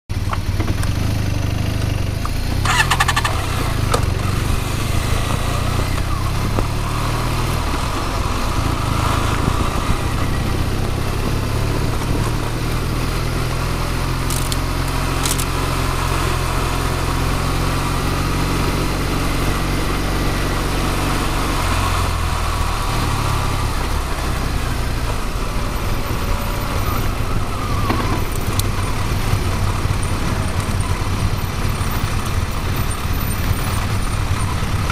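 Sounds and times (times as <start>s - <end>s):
motorcycle engine running: 0.1s - 34.9s
wind noise: 2.6s - 15.5s.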